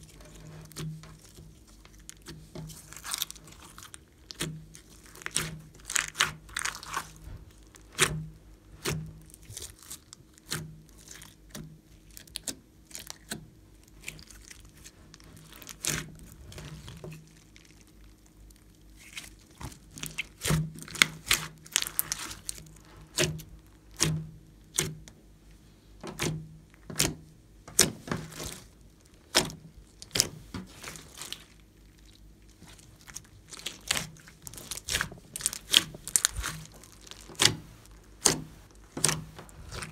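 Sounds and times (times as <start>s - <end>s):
slime squelching and popping: 0.0s - 25.1s, 26.1s - 39.9s.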